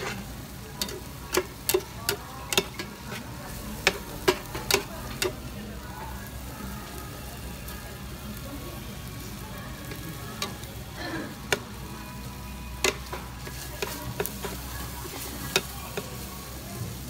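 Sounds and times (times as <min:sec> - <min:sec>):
metal spatula scraping a pan: 0:00.0 - 0:05.4, 0:12.8 - 0:16.3
food sizzling in a pan: 0:00.0 - 0:17.0.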